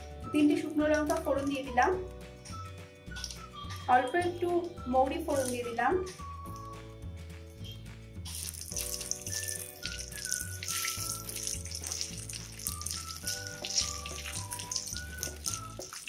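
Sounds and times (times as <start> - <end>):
background music with bass: 0.0 - 15.9
spices sizzling in hot oil: 7.6 - 16.0.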